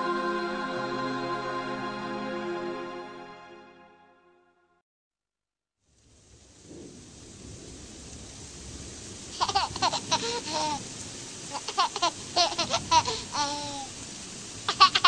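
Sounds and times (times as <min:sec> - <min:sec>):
baby laughing and babbling: 0:09.4 - 0:10.8, 0:11.5 - 0:14.0, 0:14.6 - 0:15.0.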